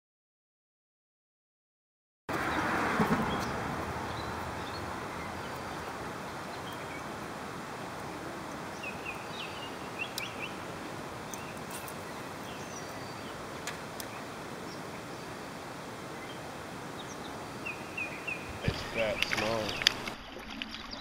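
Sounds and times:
steady background hiss: 3.4 - 20.1
bird chirps: 8.7 - 10.6, 11.2 - 13.4, 16.2 - 21.0
faint clicks: 19.2 - 20.7.

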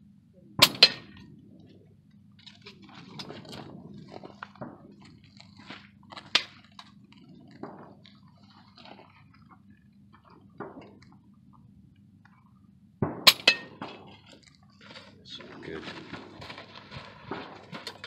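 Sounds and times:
steady low hum: 0.0 - 18.0
faint clicks and rustles: 1.6 - 12.7.

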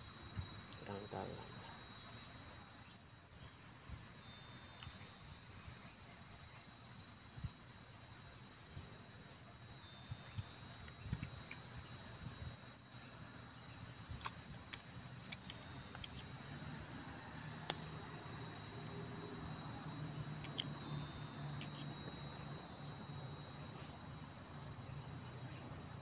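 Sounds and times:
insects trilling: 0.0 - 26.0.

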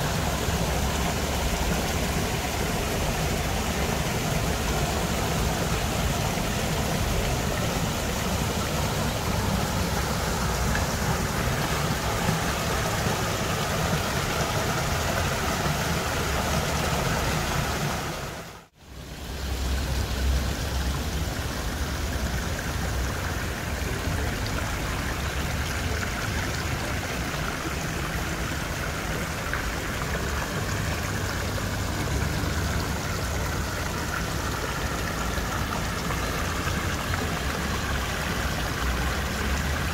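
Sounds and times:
water rushing from a waterfall: 0.0 - 39.9.

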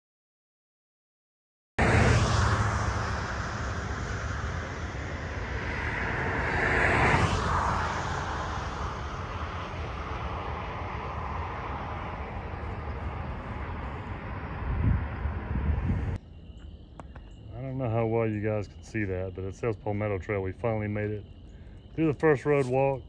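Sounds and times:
vehicle passing by: 1.8 - 16.2
low traffic rumble: 1.8 - 23.0.

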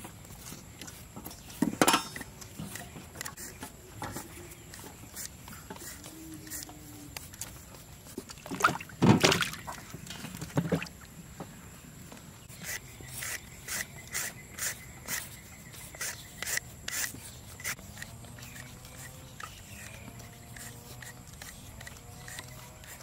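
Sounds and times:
peeler scraping potato skin: 0.4 - 7.9, 12.5 - 23.0.

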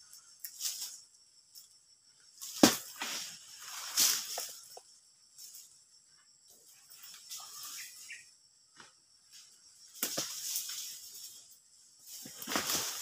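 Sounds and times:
palm leaves rustling: 0.1 - 1.2, 2.3 - 5.8, 6.6 - 8.2, 9.2 - 13.0
blade knocking into frond: 2.5 - 3.2.

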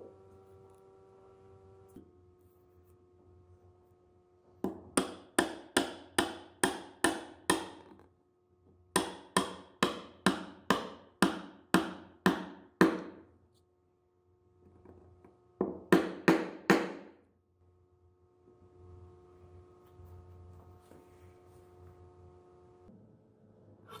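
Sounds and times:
hammer tapping wood: 4.7 - 7.9, 9.0 - 13.2.

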